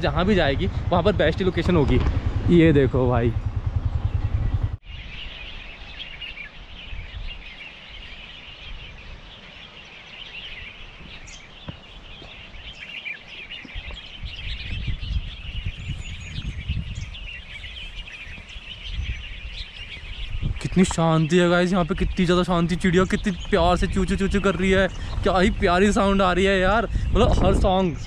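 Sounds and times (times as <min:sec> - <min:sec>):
low rumble: 0:00.0 - 0:05.1, 0:21.8 - 0:28.0
small birds chirping and singing: 0:00.0 - 0:28.0.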